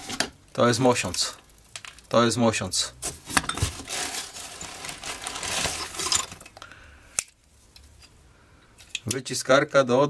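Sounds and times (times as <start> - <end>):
plastic bag rustling: 3.0 - 6.6
metal parts clinking: 5.6 - 6.5.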